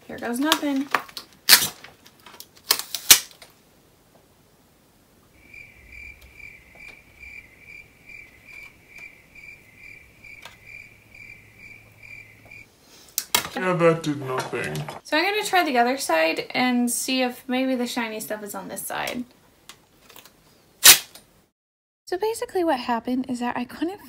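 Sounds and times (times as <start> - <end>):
sticky tape crackling: 0.1 - 3.6
cricket chirping: 5.4 - 12.7.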